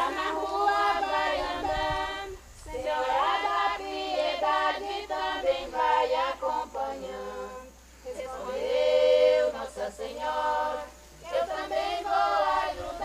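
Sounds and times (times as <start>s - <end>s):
women singing unaccompanied: 0.0s - 13.0s.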